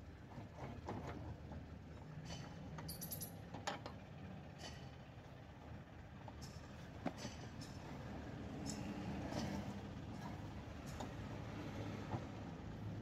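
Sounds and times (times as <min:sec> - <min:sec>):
wheel nuts clicking and clinking: 0:02.2 - 0:04.0.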